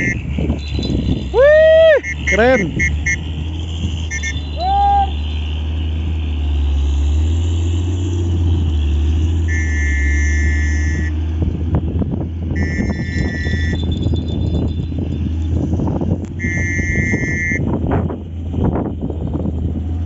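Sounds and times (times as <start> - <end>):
short pitched call: 4.2 - 5.2.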